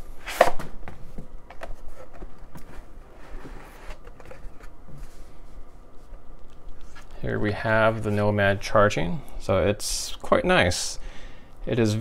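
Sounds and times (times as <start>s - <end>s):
cardboard box scraping: 2.8s - 4.7s.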